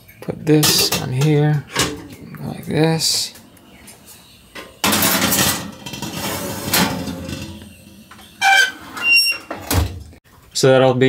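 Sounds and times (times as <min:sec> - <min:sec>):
pot scraping on metal rack: 0:04.8 - 0:09.7.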